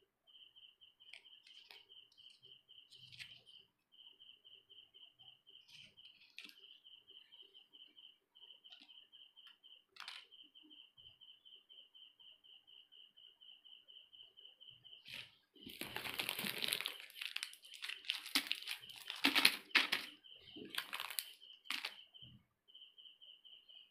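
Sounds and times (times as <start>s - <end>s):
sweet wrappers crinkling: 10.0s - 10.2s, 15.1s - 22.0s.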